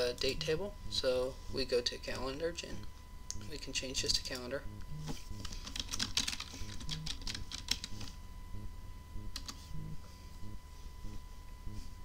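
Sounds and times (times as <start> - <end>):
typing on a computer keyboard: 5.4 - 8.1.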